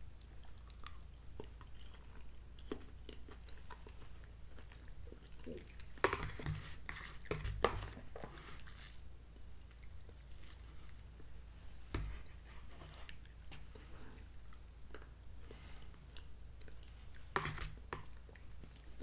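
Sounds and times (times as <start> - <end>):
person chewing: 0.2 - 6.1.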